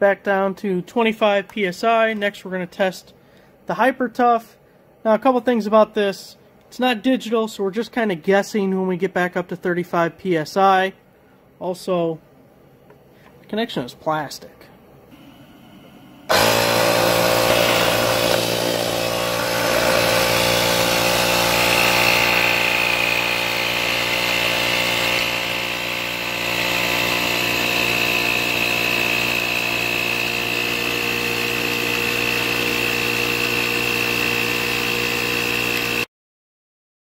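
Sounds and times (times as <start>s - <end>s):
high whine: 15.1s - 21.4s
tire inflator humming: 15.1s - 36.1s.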